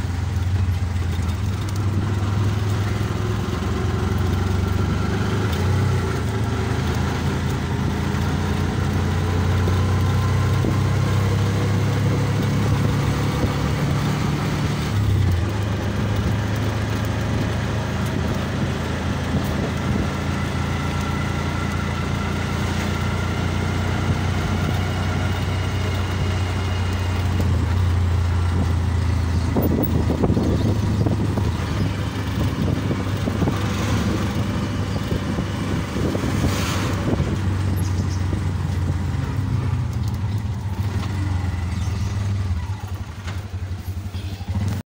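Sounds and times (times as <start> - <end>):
auto-rickshaw engine running: 0.0 - 44.8
auto-rickshaw passing: 0.0 - 44.8
road and wind noise: 0.0 - 44.8.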